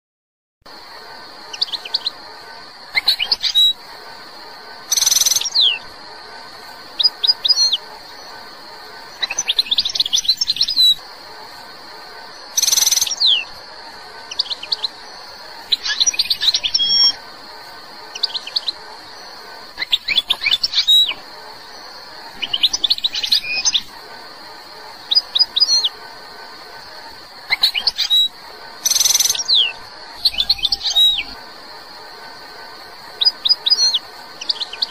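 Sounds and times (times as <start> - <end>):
faint steady high hiss: 0.7 - 34.9
goldfinch singing: 3.0 - 3.8, 7.0 - 8.2, 12.4 - 13.5, 15.6 - 17.2, 18.0 - 24.0, 27.4 - 31.4.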